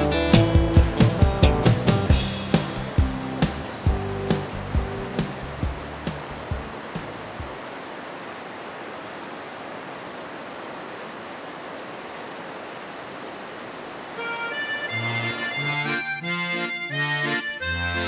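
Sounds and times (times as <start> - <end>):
accordion music: 0.0 - 6.7, 14.2 - 18.0
rushing water: 0.0 - 18.0.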